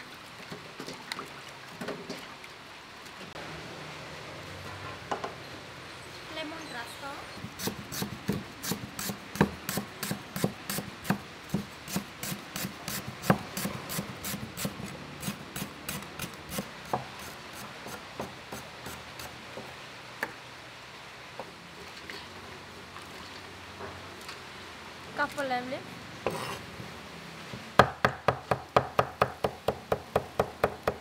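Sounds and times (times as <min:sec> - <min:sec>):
cleaver chopping on wooden board: 0:27.8 - 0:31.0.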